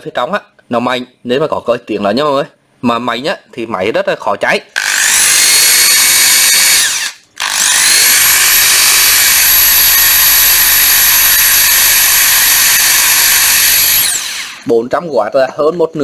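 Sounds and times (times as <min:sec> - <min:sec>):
impact driver motor whine: 0:04.8 - 0:14.7.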